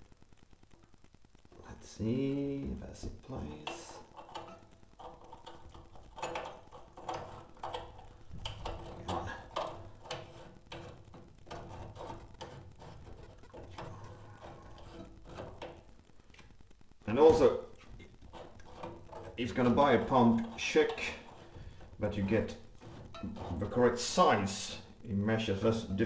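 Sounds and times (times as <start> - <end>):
metallic clicks and scrapes: 3.5 - 16.5, 17.8 - 24.7.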